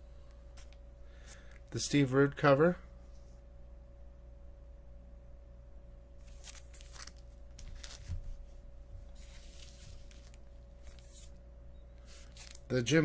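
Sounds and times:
faint steady hum: 0.0s - 13.0s
plastic bags rustling: 6.2s - 8.4s, 12.1s - 12.7s.

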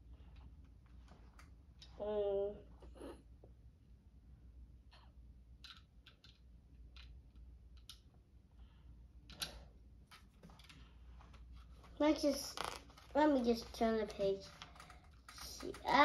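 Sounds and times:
plastic bricks clicking together: 5.6s - 8.0s.

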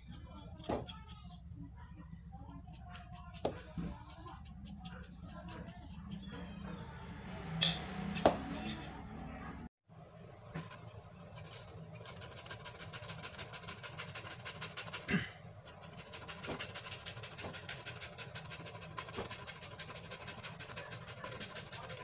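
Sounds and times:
grating on metal grater: 11.4s - 15.1s, 15.7s - 22.0s.

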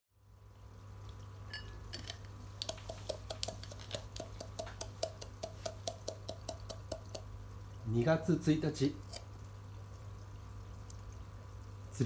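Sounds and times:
water dripping into aquarium: 0.2s - 12.0s.

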